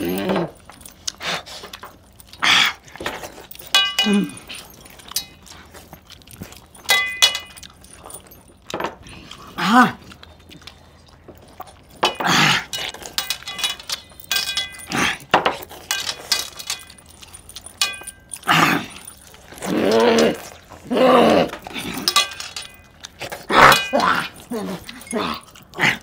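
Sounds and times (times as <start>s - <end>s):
metal rings clinking on steel plate: 2.9s - 9.1s, 11.6s - 26.0s
vocal grunt: 9.5s - 10.0s, 19.6s - 22.1s, 23.5s - 26.0s.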